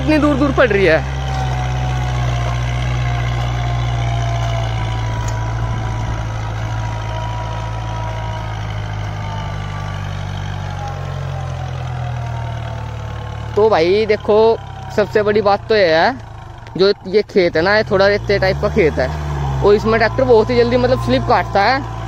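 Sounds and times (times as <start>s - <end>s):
tractor diesel engine running: 0.0s - 22.0s.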